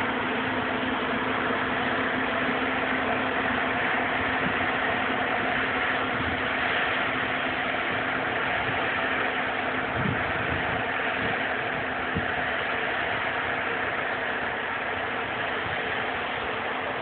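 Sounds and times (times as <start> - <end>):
combine harvester running: 0.0 - 17.0.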